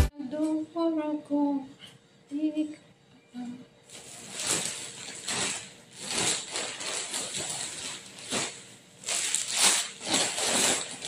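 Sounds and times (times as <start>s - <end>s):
plastic bags crinkling: 3.9s - 11.0s.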